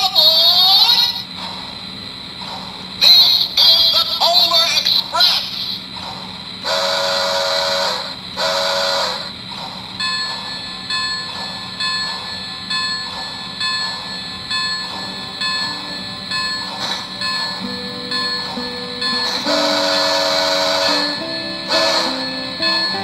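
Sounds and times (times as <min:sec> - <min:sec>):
locomotive bell ringing: 0:00.0 - 0:01.4, 0:03.0 - 0:06.0, 0:06.6 - 0:23.0
steam whistle blasts: 0:06.6 - 0:09.4, 0:15.0 - 0:23.0.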